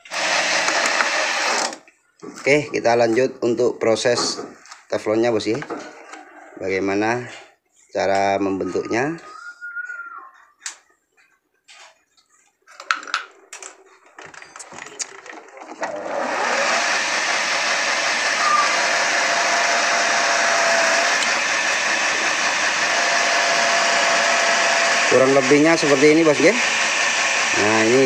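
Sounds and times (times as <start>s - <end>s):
electric power tool running: 0.0s - 1.8s, 15.7s - 28.0s
handling clicks and knocks: 12.7s - 15.9s.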